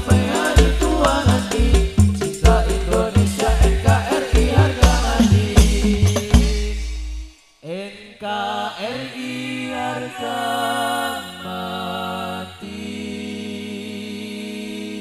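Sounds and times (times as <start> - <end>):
drums final boom: 0.0 - 7.4
men singing slow melody: 0.0 - 15.0.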